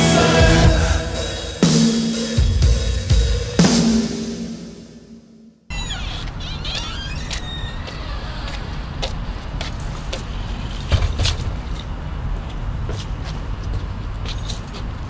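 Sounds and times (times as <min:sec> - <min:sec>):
traffic rumble: 0:05.7 - 0:15.0.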